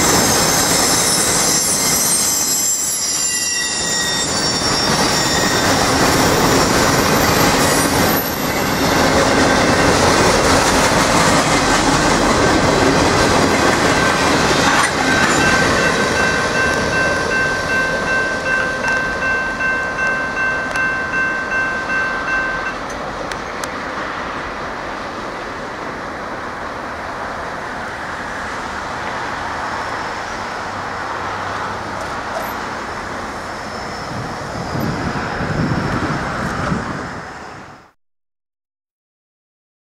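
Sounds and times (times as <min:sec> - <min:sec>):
crossing bell ringing: 0:00.0 - 0:10.1, 0:13.0 - 0:23.7
train rolling rumble: 0:03.8 - 0:37.9.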